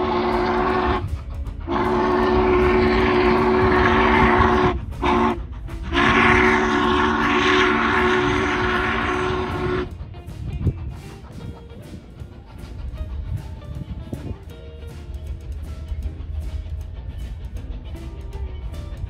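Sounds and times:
steam whistle blasts: 0.0s - 9.9s.

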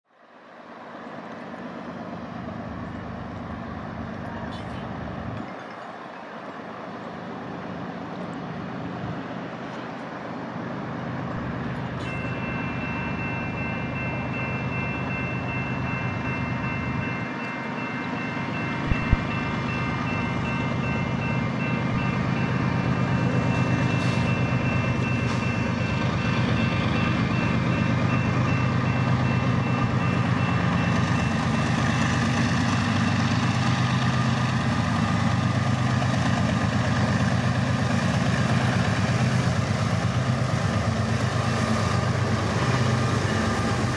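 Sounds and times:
diesel locomotive rumble: 0.6s - 43.9s
crossing warning bell ringing: 11.3s - 43.9s.

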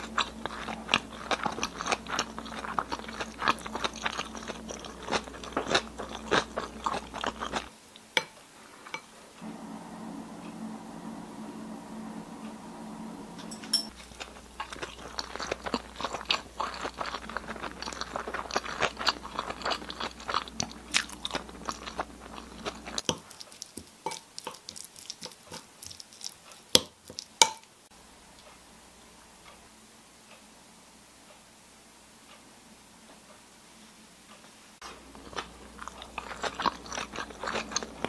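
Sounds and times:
spoon mixing wet food: 0.0s - 9.1s, 13.6s - 27.7s, 34.8s - 38.0s.

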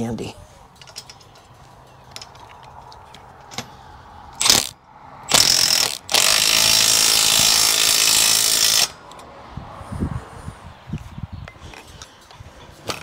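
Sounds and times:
cordless impact driver: 4.4s - 4.7s, 5.3s - 9.0s.

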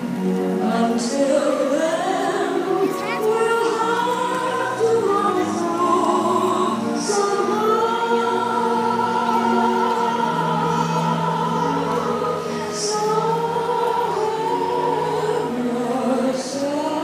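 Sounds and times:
choir singing held notes: 0.0s - 17.0s.

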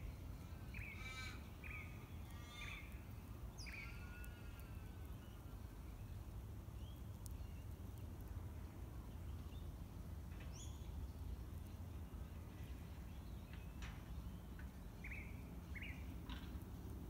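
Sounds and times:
bird chirps: 3.6s - 6.1s.

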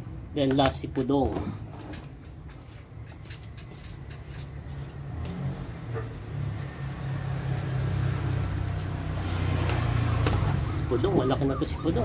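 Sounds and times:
vehicle engine humming: 4.0s - 12.0s.

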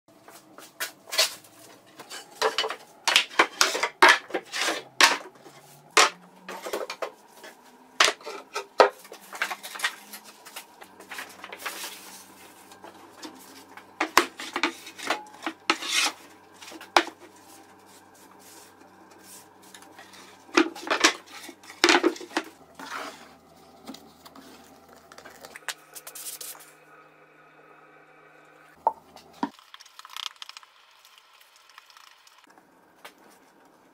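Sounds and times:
plywood pieces clattering: 2.1s - 7.1s, 20.1s - 23.0s.

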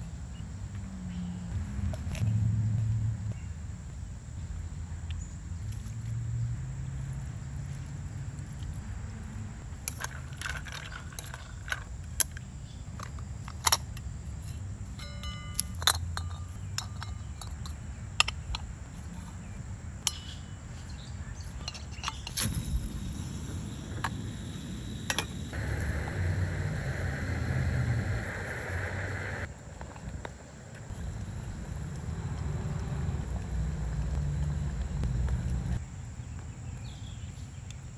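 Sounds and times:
metal clinks and taps of stove: 15.0s - 17.8s, 20.1s - 20.4s
gas stove burner hissing: 22.4s - 29.5s.

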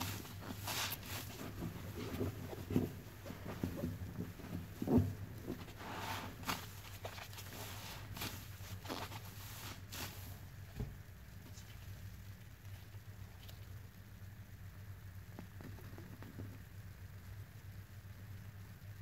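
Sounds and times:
sponge squelching in suds: 0.0s - 3.5s, 5.6s - 10.5s.

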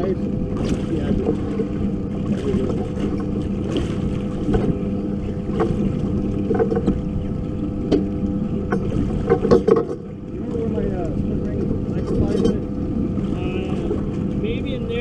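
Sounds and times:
sharp knocks on boat: 0.0s - 10.7s
outboard motor humming: 0.0s - 15.0s.

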